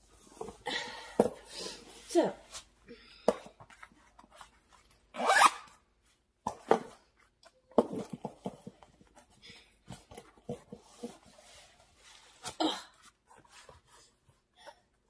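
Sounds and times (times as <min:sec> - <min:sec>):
boot zipper pulls: 0:05.2 - 0:05.8.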